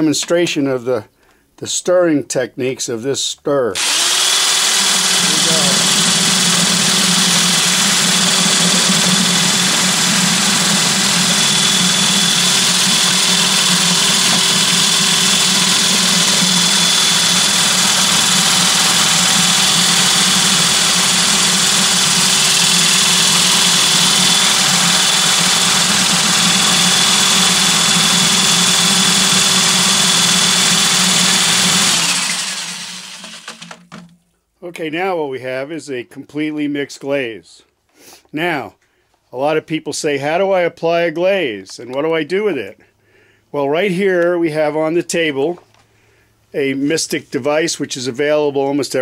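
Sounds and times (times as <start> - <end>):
electric glaze mixer running: 3.8 - 34.1.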